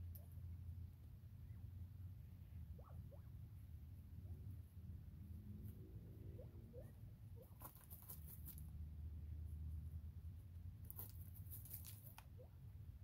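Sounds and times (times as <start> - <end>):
faint low hum: 0.0 - 13.0
quail scratching in dry hay: 7.4 - 8.7, 10.9 - 12.2.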